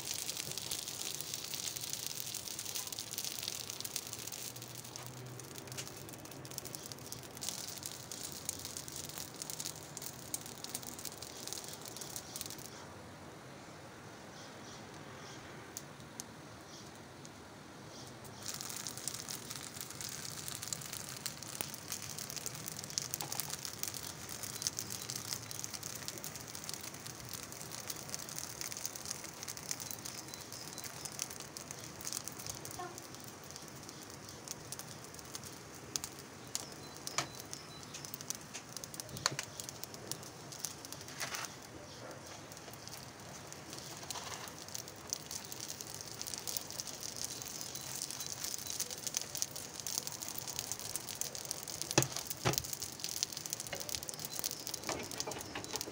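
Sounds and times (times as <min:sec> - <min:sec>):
dough sizzling in pan: 0:00.0 - 0:12.8, 0:14.6 - 0:55.9
sharp oil pops: 0:51.9 - 0:52.8.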